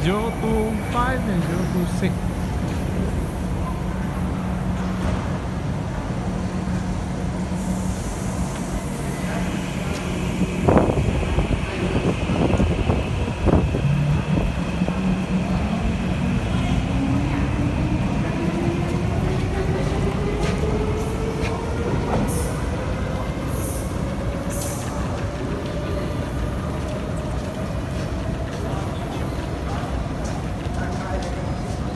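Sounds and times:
wheel-on-rail noise: 0:00.0 - 0:31.9.

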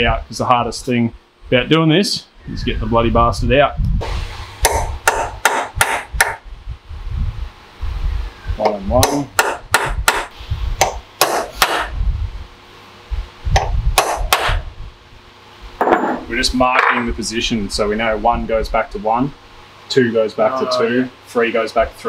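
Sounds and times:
hammer tapping metal punch: 0:04.6 - 0:06.4, 0:08.6 - 0:11.9.

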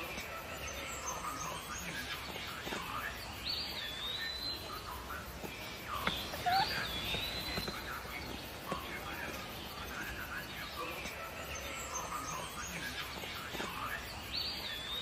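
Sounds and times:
low outdoor background: 0:00.0 - 0:15.0
animal whistled calls: 0:06.1 - 0:07.8.

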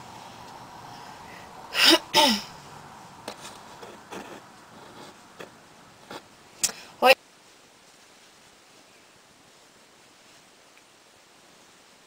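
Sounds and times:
woman sneezing: 0:01.8 - 0:02.5.

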